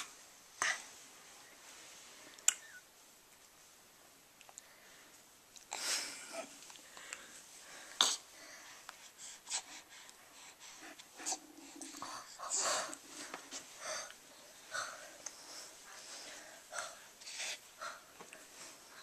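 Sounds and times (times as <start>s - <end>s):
baby breathy vocal sounds: 7.2s - 19.0s.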